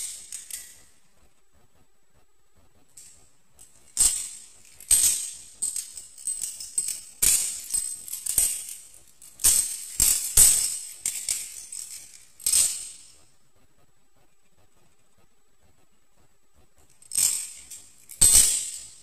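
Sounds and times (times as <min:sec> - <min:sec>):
butterfly knife clicking and rattling: 0:00.0 - 0:00.8, 0:03.0 - 0:13.2.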